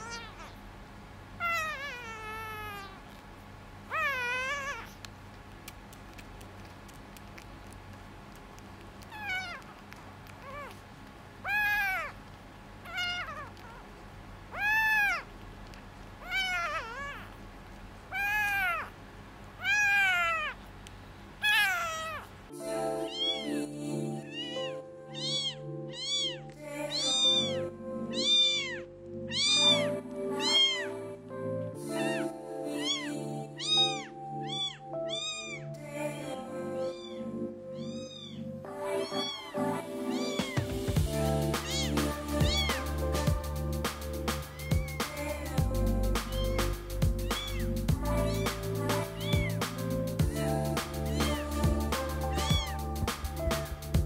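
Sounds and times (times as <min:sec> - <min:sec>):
kitten meowing: 0:00.0 - 0:00.6, 0:01.4 - 0:03.1, 0:03.9 - 0:05.0, 0:09.0 - 0:10.8, 0:11.4 - 0:12.2, 0:12.8 - 0:13.8, 0:14.5 - 0:15.3, 0:16.2 - 0:17.4, 0:18.1 - 0:18.9, 0:19.6 - 0:20.6, 0:21.4 - 0:22.3, 0:24.3 - 0:30.9, 0:32.8 - 0:35.6, 0:36.8 - 0:37.2, 0:37.8 - 0:40.7, 0:41.6 - 0:42.9, 0:44.5 - 0:45.0, 0:46.3 - 0:49.6, 0:51.1 - 0:51.4, 0:52.3 - 0:52.8
background music: 0:22.5 - 0:54.0.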